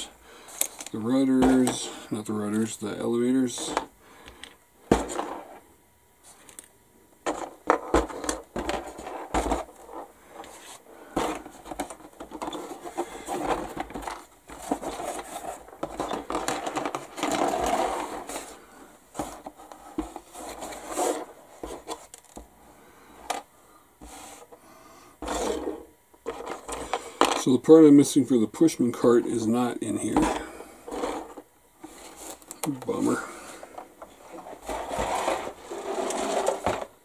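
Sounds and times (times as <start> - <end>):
plastic parts clicking and knocking: 11.2 - 18.5, 26.2 - 27.5.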